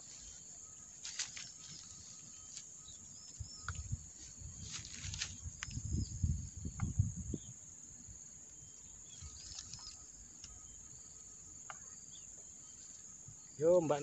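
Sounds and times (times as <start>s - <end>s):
faint bird chirps: 0.0s - 7.6s, 8.5s - 14.0s
high-pitched insect buzzing: 8.7s - 13.6s.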